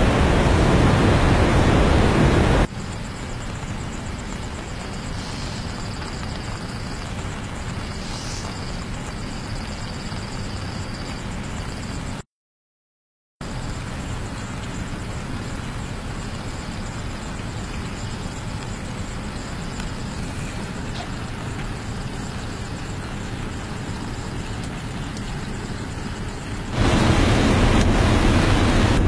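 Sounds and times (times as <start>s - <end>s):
loud steady roar: 0.0s - 2.7s, 26.7s - 29.0s
outdoor rushing noise with low rumble: 0.0s - 12.2s, 13.4s - 29.0s.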